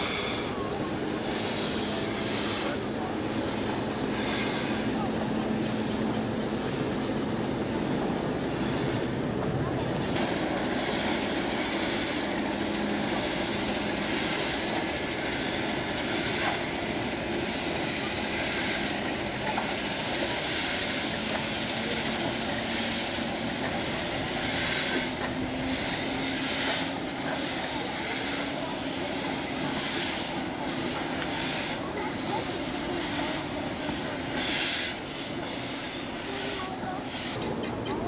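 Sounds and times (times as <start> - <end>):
steam locomotive hissing: 0.0 - 38.0.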